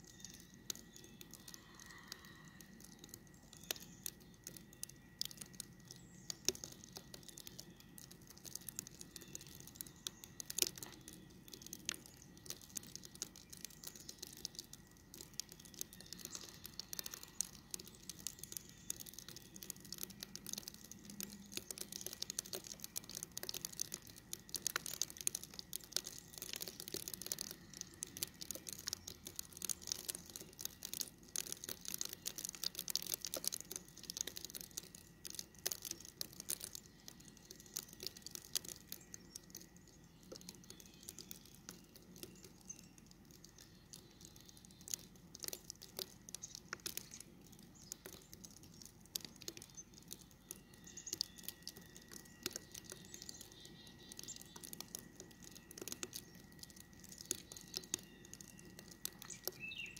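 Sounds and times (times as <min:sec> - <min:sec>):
crackling and ticking of snow: 0:00.0 - 0:59.9.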